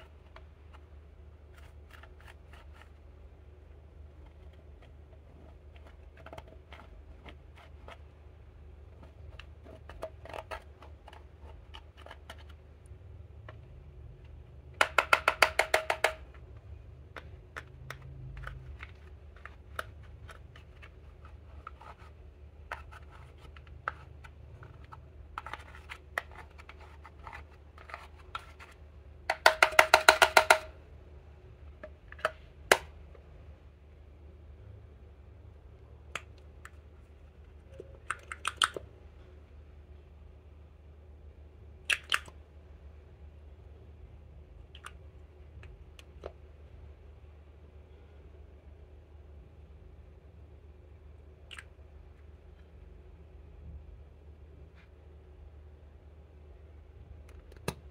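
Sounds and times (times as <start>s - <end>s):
tool scratching plastic palette: 8.9s - 12.6s.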